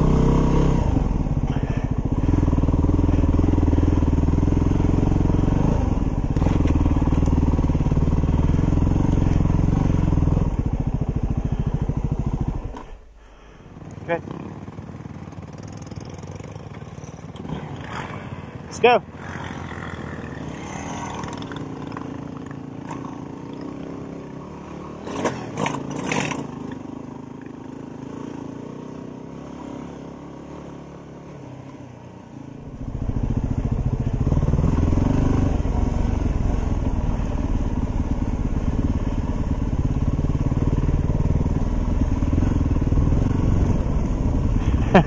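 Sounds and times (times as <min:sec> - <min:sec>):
dirt bike engine revving: 0:00.0 - 0:31.3, 0:32.6 - 0:45.0
dirt bike engines running: 0:00.0 - 0:45.0
motorcycle pulling away: 0:00.0 - 0:45.0.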